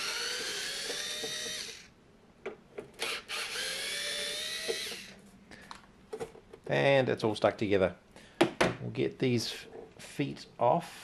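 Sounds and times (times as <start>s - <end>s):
electric screwdriver motor whine: 0.0s - 1.9s, 3.0s - 5.1s.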